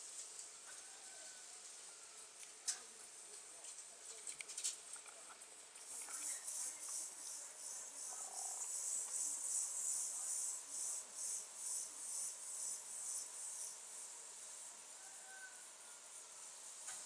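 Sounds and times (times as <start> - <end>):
cricket chirping: 5.8 - 17.0.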